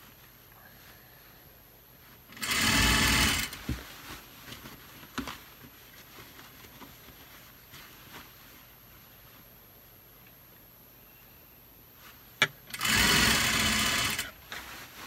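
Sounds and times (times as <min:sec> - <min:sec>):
sewing machine stitching: 0:02.3 - 0:03.6, 0:12.7 - 0:14.3.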